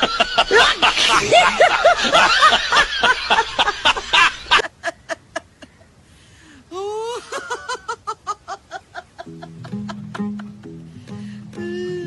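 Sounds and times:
laugh with high whoop: 0.0s - 5.8s, 6.7s - 10.7s
laughter in quick bursts: 0.0s - 5.9s, 7.1s - 10.7s
music with low notes: 9.2s - 12.0s.

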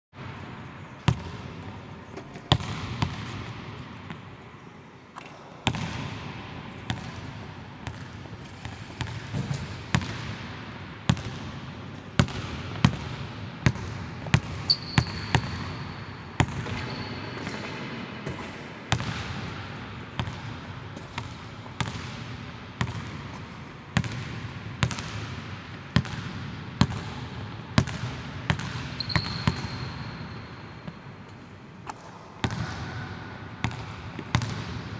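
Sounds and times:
sneaker squeaks on floor: 14.6s - 16.0s, 16.6s - 17.7s, 29.0s - 30.5s.

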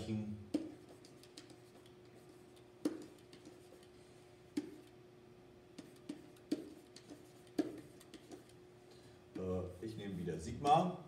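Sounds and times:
faint steady hum: 0.0s - 11.0s
pen tapping on whiteboard: 0.5s - 3.8s, 4.5s - 4.9s, 5.8s - 8.5s.

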